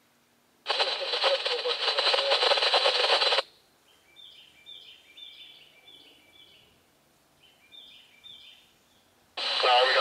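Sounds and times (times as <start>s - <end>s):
scanner radio hiss: 0.6s - 3.4s, 9.4s - 10.0s.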